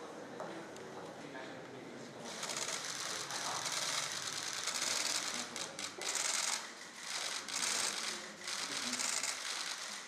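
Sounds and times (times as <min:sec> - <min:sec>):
camera shutters clicking: 0:02.4 - 0:10.0.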